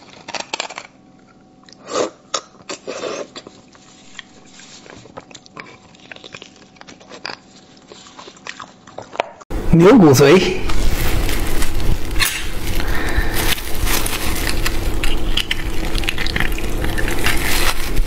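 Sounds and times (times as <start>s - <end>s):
wet sucking and chewing: 1.4s - 9.2s, 12.4s - 18.0s.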